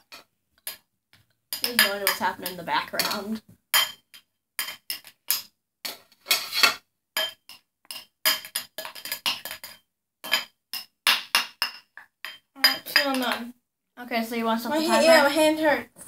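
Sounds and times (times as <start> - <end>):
metal spoon clinking against bowl: 1.5 - 5.4, 6.3 - 13.4.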